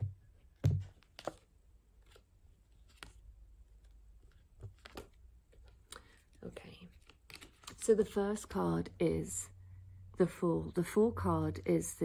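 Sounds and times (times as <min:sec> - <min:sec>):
cards clicking and tapping: 0:00.6 - 0:02.2, 0:03.8 - 0:06.2.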